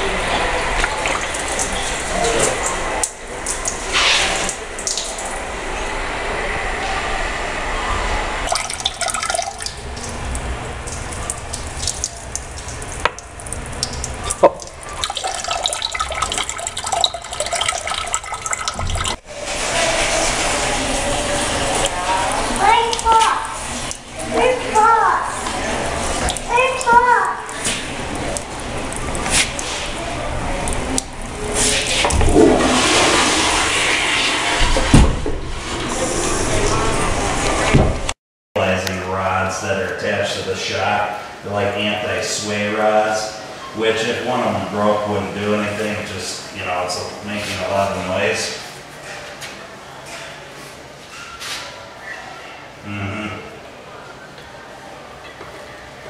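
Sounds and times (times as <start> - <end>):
water stream into toilet bowl: 0.2 - 5.7, 8.5 - 37.7
water splashing on tile floor: 0.4 - 5.5, 8.4 - 35.2.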